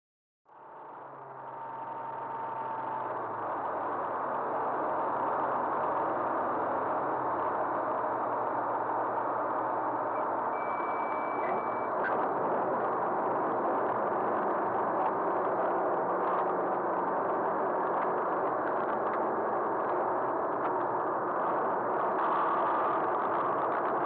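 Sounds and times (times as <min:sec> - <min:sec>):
short high beep: 0:10.6 - 0:12.0.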